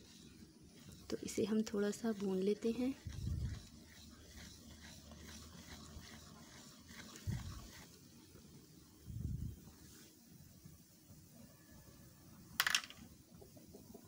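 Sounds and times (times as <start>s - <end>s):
spatula scraping pan: 0.0s - 8.0s.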